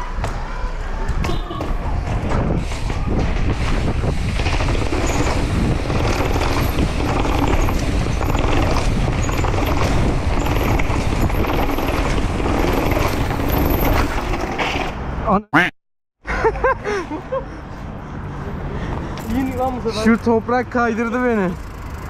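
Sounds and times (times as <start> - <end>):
bike chain and frame rattling: 3.4 - 14.9, 19.2 - 20.4, 21.0 - 22.0.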